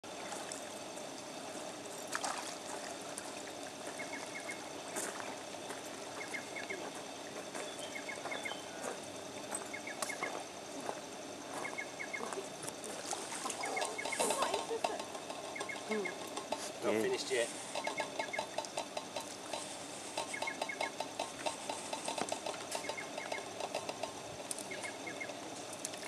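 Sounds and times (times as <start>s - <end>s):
water sloshing around legs: 0.1s - 6.7s
sharp splashes: 2.1s - 2.6s.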